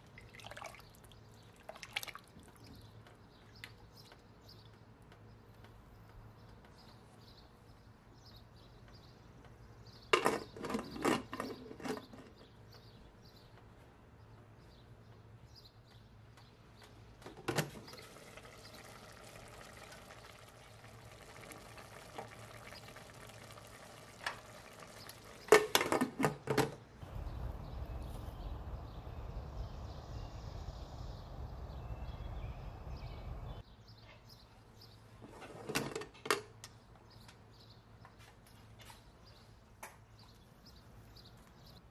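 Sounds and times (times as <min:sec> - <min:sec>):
broth bubbling in a pot: 0:00.0 - 0:02.7, 0:17.8 - 0:25.8.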